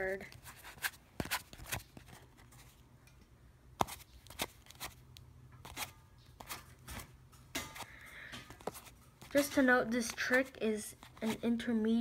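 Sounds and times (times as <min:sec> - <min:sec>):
playing cards clicking and snapping: 0:03.8 - 0:05.0.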